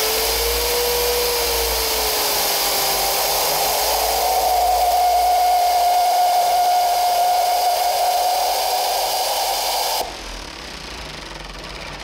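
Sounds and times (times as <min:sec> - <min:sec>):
compressed air hiss: 0:00.0 - 0:10.2
impeller whine: 0:00.0 - 0:11.3.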